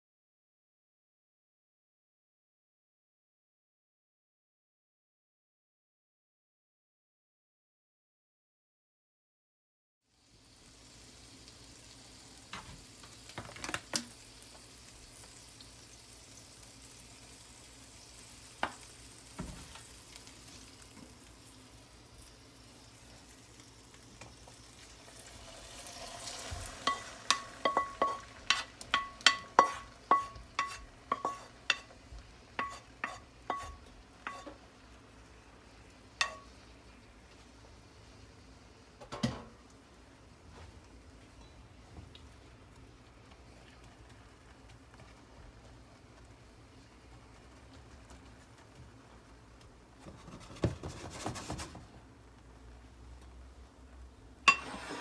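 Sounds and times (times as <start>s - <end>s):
batter sizzling in a frying pan: 10.0s - 55.0s
utensil knocking mixing bowl: 26.6s - 31.9s.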